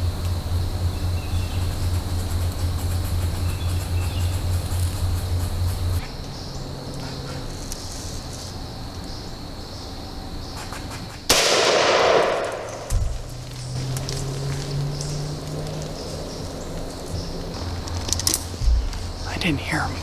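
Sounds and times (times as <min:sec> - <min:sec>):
gunshot: 0:11.3 - 0:13.2
dull low thump: 0:12.8 - 0:13.6, 0:18.5 - 0:19.2.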